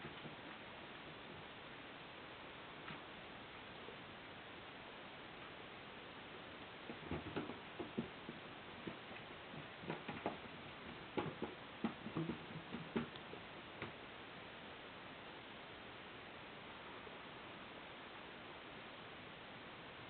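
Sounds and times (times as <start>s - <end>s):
cat pawing cardboard box: 6.9s - 13.2s.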